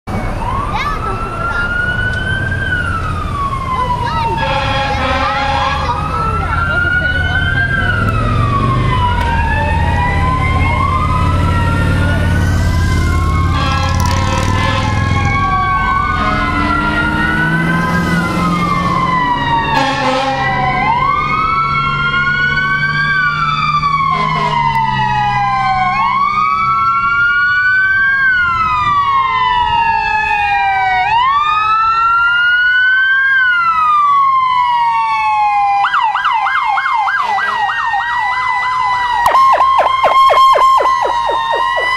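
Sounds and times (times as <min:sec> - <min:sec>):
vehicle engine rumbling: 0:00.1 - 0:22.7, 0:39.2 - 0:41.9
emergency sirens wailing: 0:00.1 - 0:41.9
rapid yelp siren: 0:00.1 - 0:41.9.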